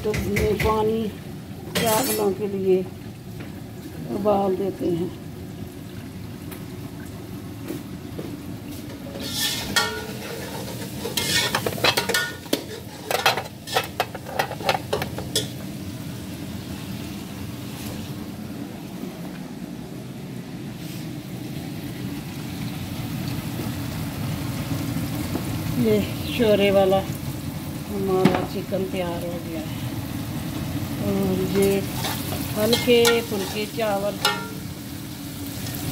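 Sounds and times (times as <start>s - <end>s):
low rumble of cooking: 0.0s - 35.9s
steel pots and utensils clattering: 1.7s - 2.4s, 9.1s - 15.6s, 31.6s - 34.6s.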